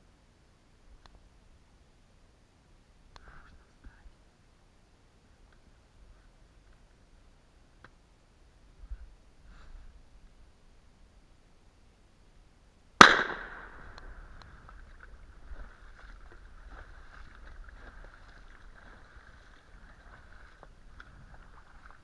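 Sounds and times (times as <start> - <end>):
faint steady hiss: 0.0 - 22.0
shotgun shot: 13.0 - 14.3.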